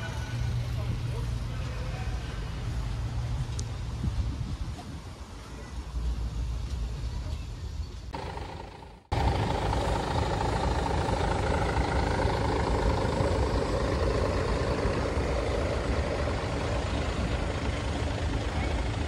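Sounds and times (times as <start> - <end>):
deep rumble: 8.1 - 19.0
diesel engine running: 8.1 - 19.0.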